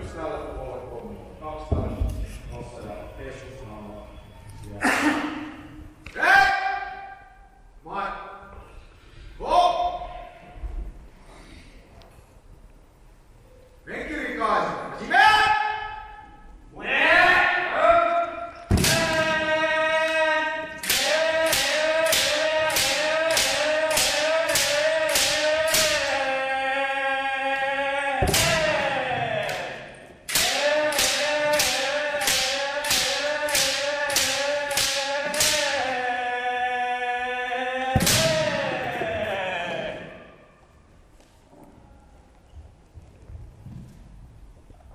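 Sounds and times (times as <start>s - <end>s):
person shouting: 6.1s - 7.4s, 16.8s - 40.6s
bamboo sword strikes: 18.7s - 19.4s, 20.8s - 26.1s, 30.3s - 35.8s.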